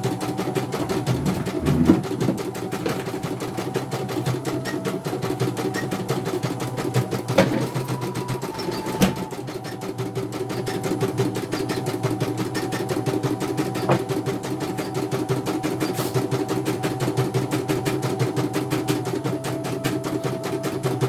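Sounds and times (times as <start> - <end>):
machine motor hum: 0.4 - 5.4.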